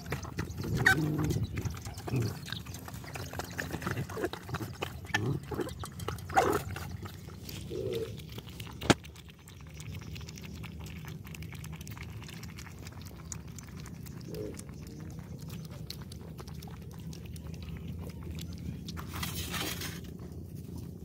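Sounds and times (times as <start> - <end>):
dogs slurping and chewing: 0.0 - 21.0
puppies lapping milk: 0.0 - 21.0.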